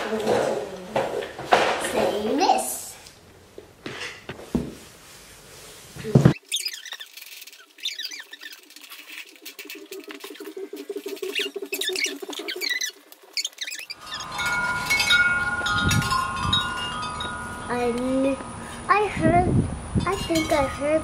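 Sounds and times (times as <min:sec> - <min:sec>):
faint high squeaks: 0:06.3 - 0:09.3, 0:11.3 - 0:15.1
tubular wind chime ringing: 0:13.9 - 0:18.9, 0:20.0 - 0:21.0.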